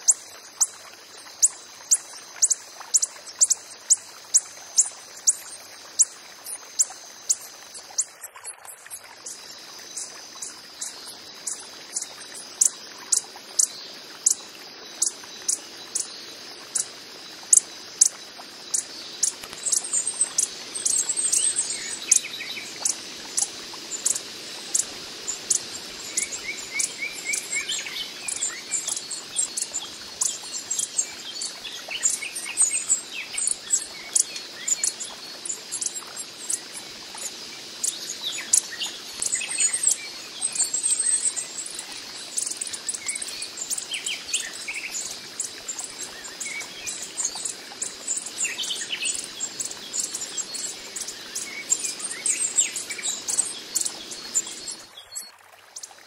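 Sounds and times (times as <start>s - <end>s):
hummingbird calling: 18.7s - 35.0s.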